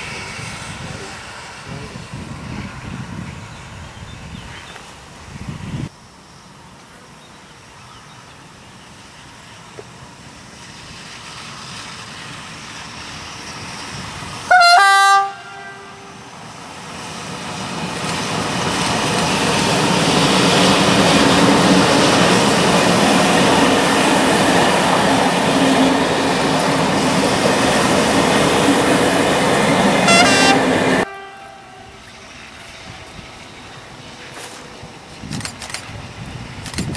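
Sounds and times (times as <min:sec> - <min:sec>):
train wheels rolling on rails: 0:00.0 - 0:14.6, 0:15.5 - 0:36.9
train two-tone horn: 0:14.5 - 0:16.3, 0:30.0 - 0:32.4.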